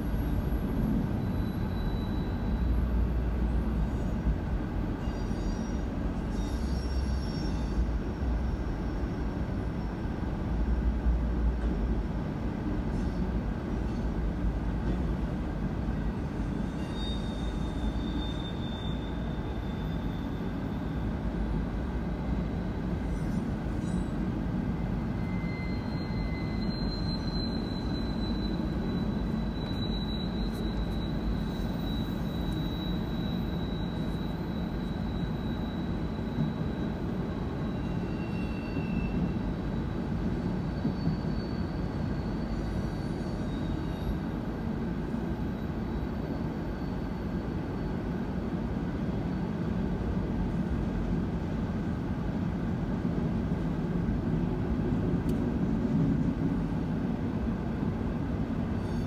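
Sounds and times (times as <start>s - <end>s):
train wheels rumbling on rails: 0.0s - 59.0s
faint high whines: 16.3s - 44.4s.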